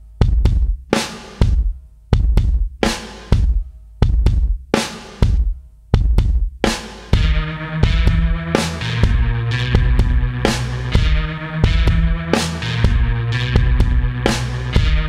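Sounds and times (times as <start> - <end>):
loud drum beat: 0.0 - 15.0
sustained bass tones: 7.2 - 15.0.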